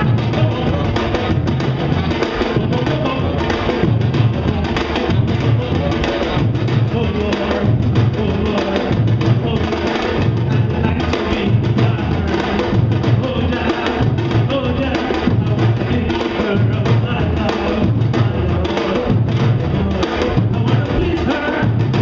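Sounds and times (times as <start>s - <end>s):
bass drums low beat: 0.0s - 22.0s
drum ensemble playing: 0.0s - 22.0s.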